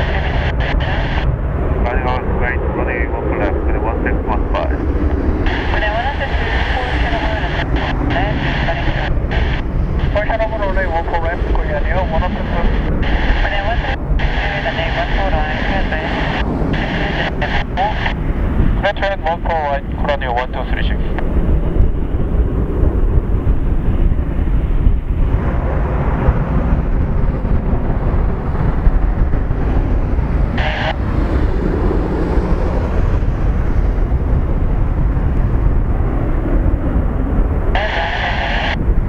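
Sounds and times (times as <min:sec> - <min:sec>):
radio static bursts: 0:00.0 - 0:04.8, 0:05.4 - 0:18.2, 0:30.5 - 0:31.0, 0:37.8 - 0:38.8
jet engines rumbling: 0:00.0 - 0:39.0.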